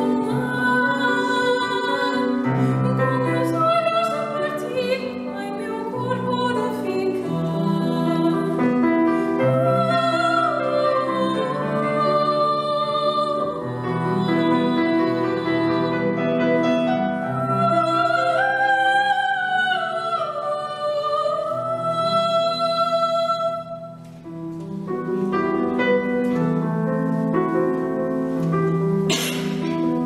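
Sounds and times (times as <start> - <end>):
classical singing: 0.0 - 30.0
piano accompaniment: 0.0 - 30.0
short hiss: 28.2 - 30.0.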